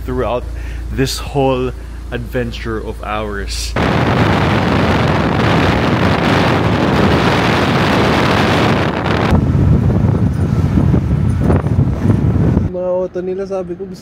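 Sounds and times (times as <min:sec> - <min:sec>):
car rumble at road speed: 0:00.0 - 0:12.7
wind rushing on microphone: 0:03.8 - 0:12.7.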